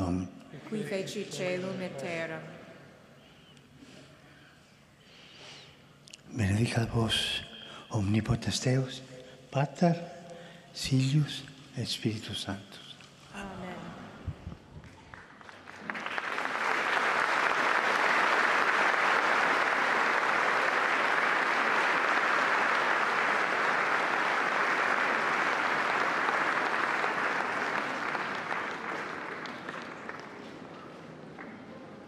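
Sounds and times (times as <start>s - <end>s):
crowd applauding: 14.8s - 31.9s.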